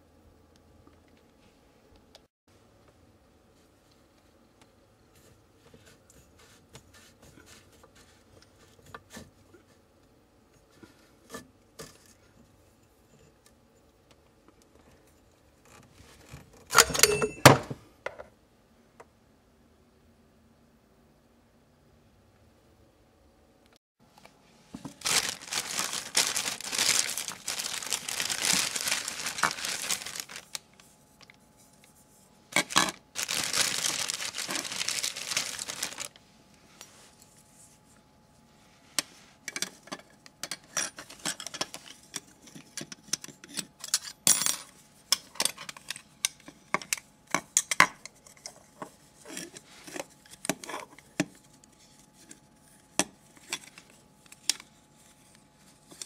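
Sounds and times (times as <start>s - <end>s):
plastic bag crinkling: 24.8s - 30.9s, 32.6s - 36.2s.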